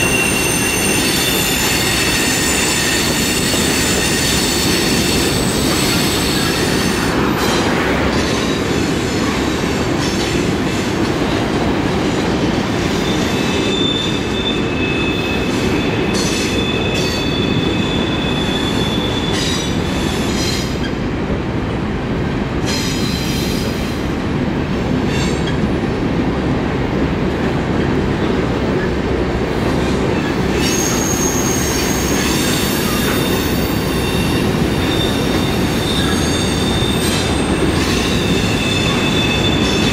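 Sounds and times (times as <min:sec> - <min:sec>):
high wheel squeal: 0:00.0 - 0:08.6, 0:12.8 - 0:21.0, 0:30.2 - 0:39.9
train wheels rumbling on rails: 0:00.0 - 0:39.9.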